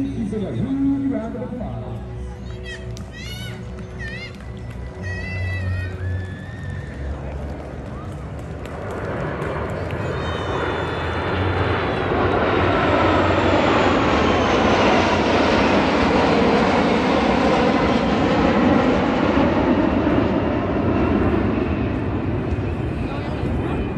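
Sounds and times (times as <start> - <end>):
jets flying past: 5.0 - 23.9.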